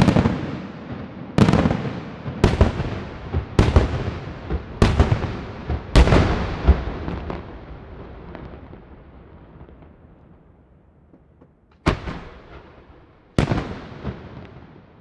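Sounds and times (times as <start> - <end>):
fireworks bangs: 0.0 - 15.0
rolling echo of fireworks: 0.0 - 15.0
small fireworks cracks: 0.0 - 15.0.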